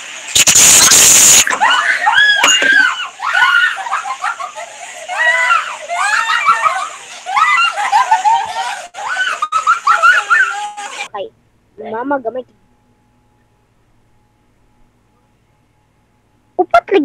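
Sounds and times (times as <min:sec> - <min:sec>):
loud static burst: 0:00.0 - 0:02.6
girls laughing: 0:01.4 - 0:11.1
girls screaming: 0:01.4 - 0:11.1.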